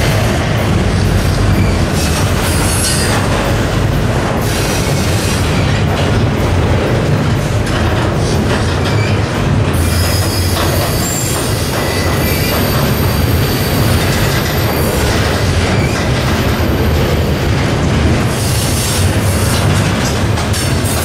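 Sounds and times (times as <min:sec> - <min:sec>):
freight train rolling past: 0:00.0 - 0:21.0
wheel squeal: 0:09.8 - 0:14.9.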